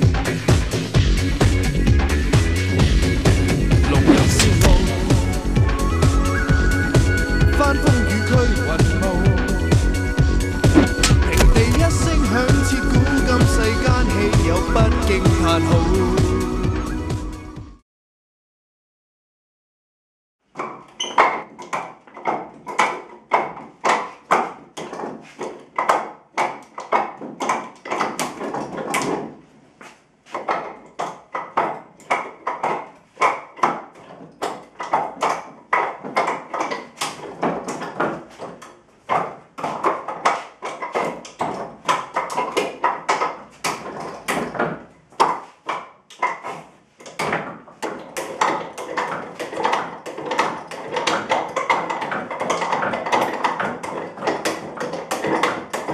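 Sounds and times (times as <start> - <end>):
rapid clacks on wooden dummy: 0.0 - 5.3, 20.4 - 55.9.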